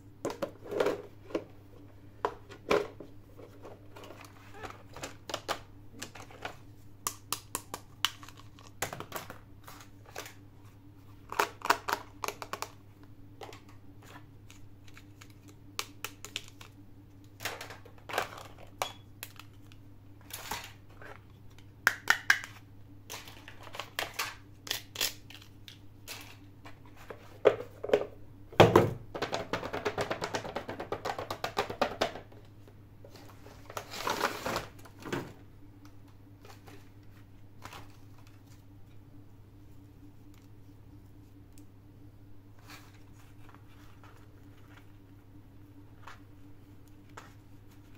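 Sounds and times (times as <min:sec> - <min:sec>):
low steady hum: 0:00.0 - 0:47.9.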